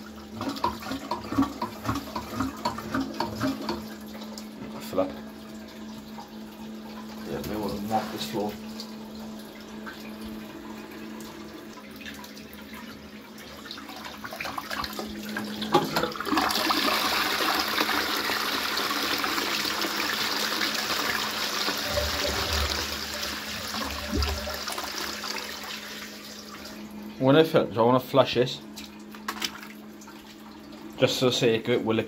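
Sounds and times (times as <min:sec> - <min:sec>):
toilet flush rushing: 0:00.0 - 0:32.0
toilet flush button click: 0:15.6 - 0:16.6, 0:21.6 - 0:24.8
toilet cistern refilling hiss: 0:16.2 - 0:26.2.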